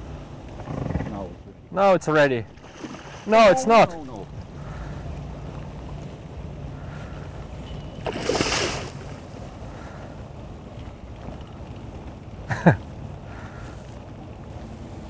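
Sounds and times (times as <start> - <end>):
outboard motor running: 0.0 - 15.0
fish splashing at water surface: 2.5 - 3.4, 8.0 - 10.0.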